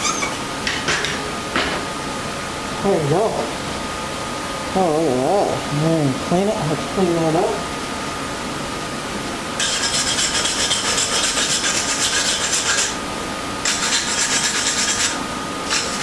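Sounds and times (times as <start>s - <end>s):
wire brush scratching metal: 13.6s - 16.0s.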